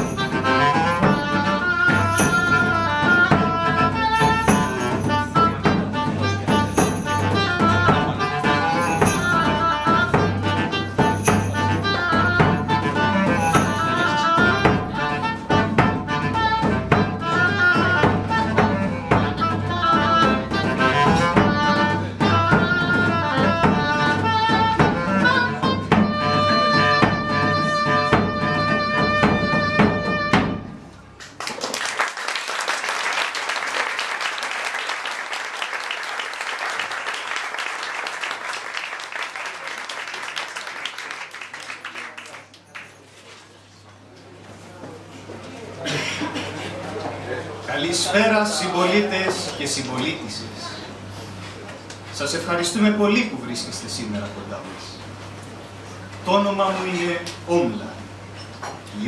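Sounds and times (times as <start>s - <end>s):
woodwind ensemble with percussion: 0.0s - 31.1s
audience applauding: 31.2s - 43.1s.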